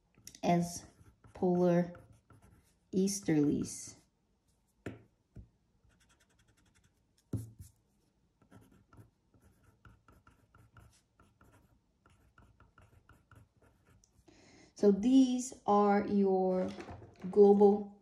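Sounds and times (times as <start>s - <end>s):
pencil scratching on paper: 0.6s - 3.3s, 5.8s - 7.8s, 8.4s - 14.1s
pencil taps: 4.8s - 5.5s, 7.2s - 7.7s.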